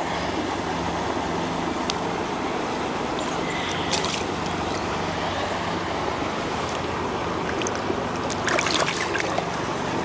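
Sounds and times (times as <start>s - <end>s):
wind: 0.0s - 10.0s
lake water: 2.5s - 10.0s.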